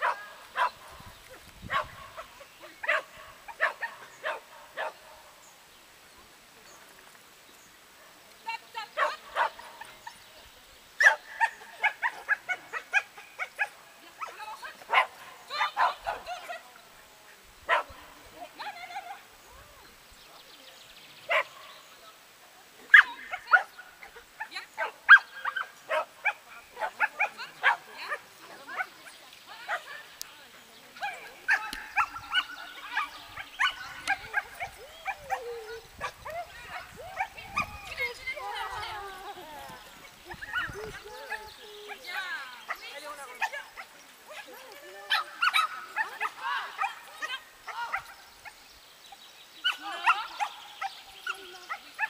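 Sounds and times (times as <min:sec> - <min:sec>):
dog barking: 0:00.0 - 0:00.8, 0:01.7 - 0:05.3, 0:09.0 - 0:09.9, 0:11.0 - 0:16.5, 0:17.7 - 0:18.0, 0:21.3 - 0:21.7, 0:22.9 - 0:24.2, 0:24.8 - 0:28.9, 0:31.5 - 0:37.7, 0:45.1 - 0:48.6.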